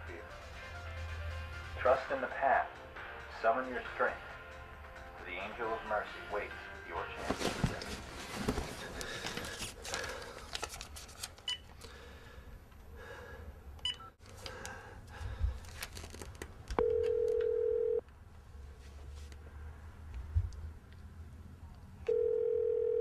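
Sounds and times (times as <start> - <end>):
steady telephone tone: 16.8 - 18.0, 22.1 - 23.0.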